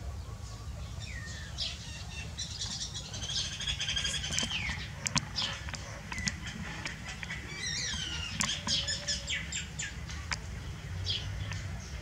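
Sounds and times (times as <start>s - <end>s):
small songbirds chirping: 0.0s - 12.0s
sharp clicks: 4.0s - 8.9s.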